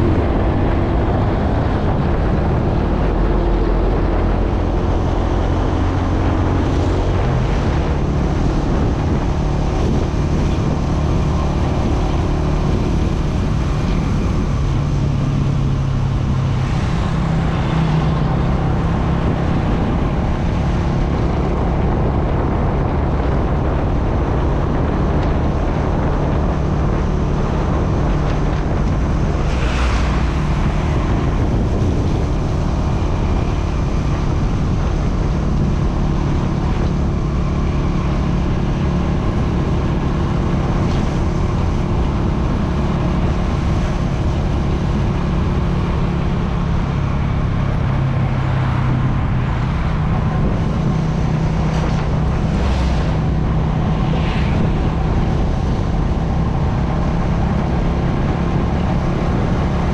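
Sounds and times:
traffic: 0.0s - 59.9s
wind noise on microphone: 0.0s - 59.9s.

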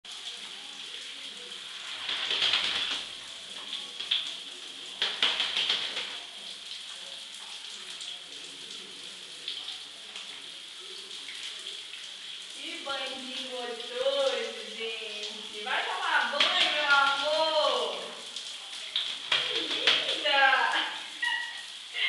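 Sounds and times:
shower spraying on tiled floor: 0.1s - 22.0s
bird flapping wings in water: 1.8s - 6.4s, 16.4s - 17.2s, 18.9s - 20.5s.

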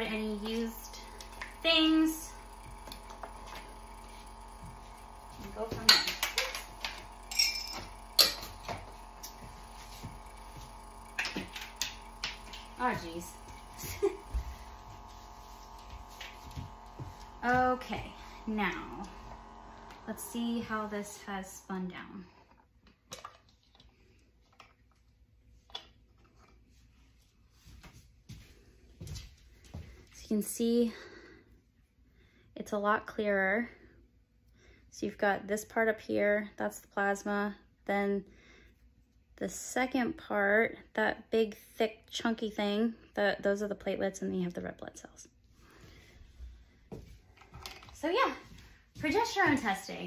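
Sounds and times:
faint steady hum: 0.0s - 22.6s.

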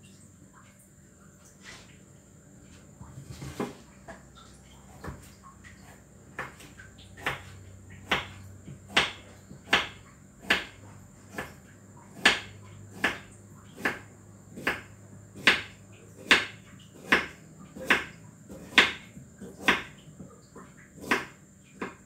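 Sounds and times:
knife chopping on cutting board: 6.3s - 19.9s, 21.0s - 22.0s.

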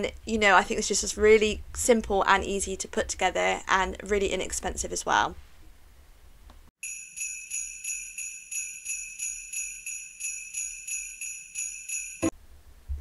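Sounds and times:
jingle bells shaken: 6.8s - 12.3s.

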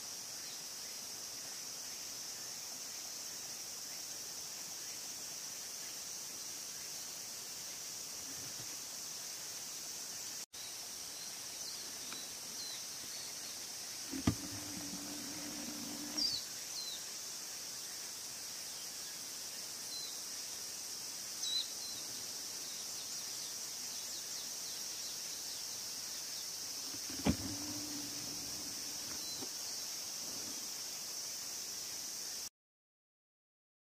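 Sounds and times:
high insect chorus: 0.0s - 32.5s
click: 14.1s - 16.3s, 26.9s - 29.5s.

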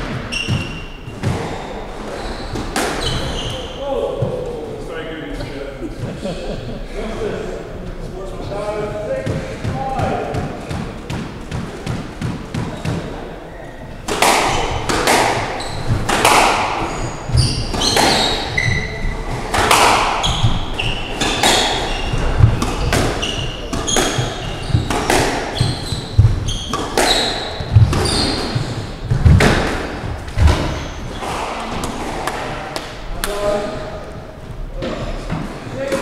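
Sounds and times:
shoes squeaking on wooden floor: 0.0s - 4.6s, 9.4s - 32.2s
squash ball hits ringing: 14.0s - 32.4s.

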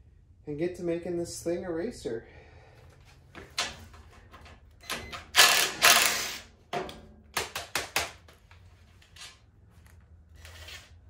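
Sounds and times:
cordless drill running: 5.4s - 6.5s.

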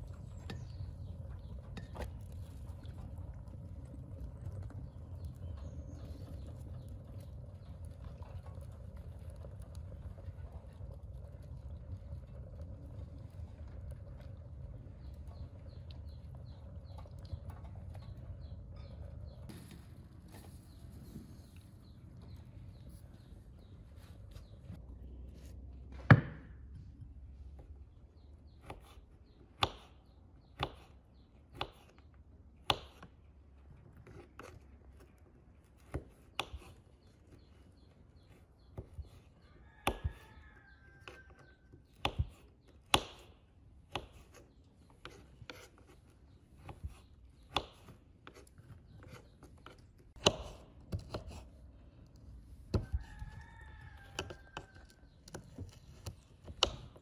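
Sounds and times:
knife chopping on wooden board: 26.0s - 26.6s, 29.6s - 30.9s, 41.9s - 44.4s, 49.0s - 51.5s, 54.1s - 57.0s
faint rooster crowing: 39.4s - 41.9s, 52.7s - 55.7s.

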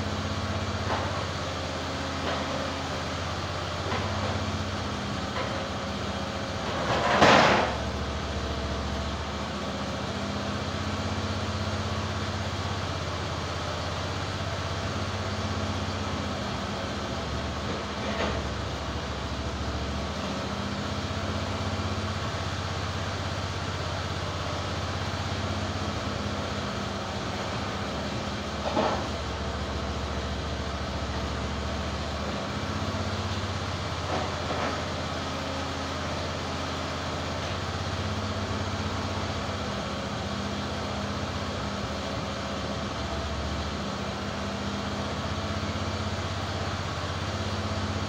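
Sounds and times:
sawmill engine running: 0.0s - 48.0s.

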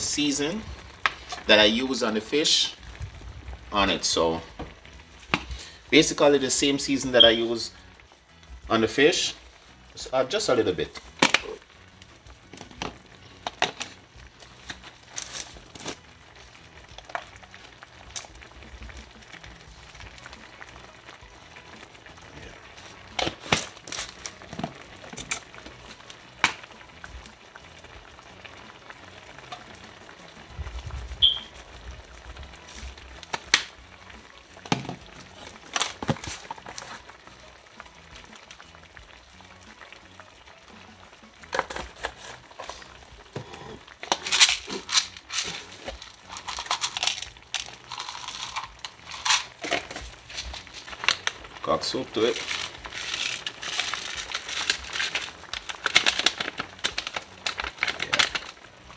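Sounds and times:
plastic shakers clicking and tapping: 34.6s - 37.0s, 41.4s - 43.4s, 44.0s - 58.6s.

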